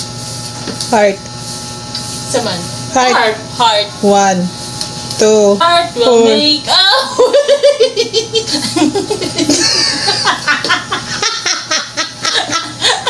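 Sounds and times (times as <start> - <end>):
women laughing: 6.9 - 13.0.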